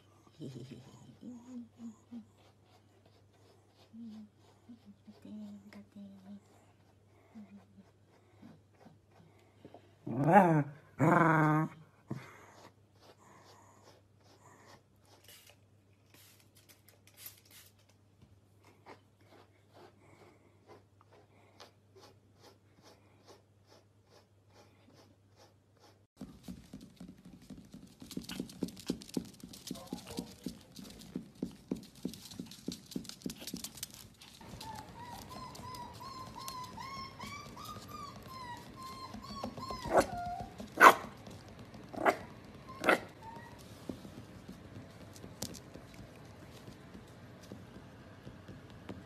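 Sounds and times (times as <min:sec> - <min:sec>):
brush strokes through fur: 0:01.2 - 0:09.3, 0:12.4 - 0:17.9, 0:18.9 - 0:26.7
puppy whining: 0:10.0 - 0:12.7, 0:29.7 - 0:31.0, 0:33.3 - 0:44.4
paws pattering on wooden floor: 0:26.2 - 0:49.0
puppy yipping: 0:34.4 - 0:44.0.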